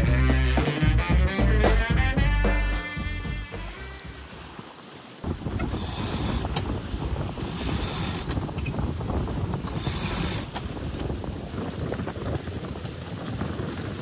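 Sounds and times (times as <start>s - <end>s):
wind buffeting the microphone: 5.2s - 14.0s
winch ratchet clicking: 7.5s - 8.3s, 9.7s - 10.5s.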